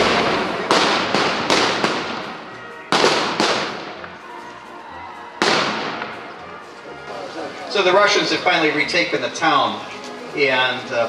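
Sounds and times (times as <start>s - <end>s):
blank gunshots echoing: 0.0s - 4.1s, 5.4s - 6.3s.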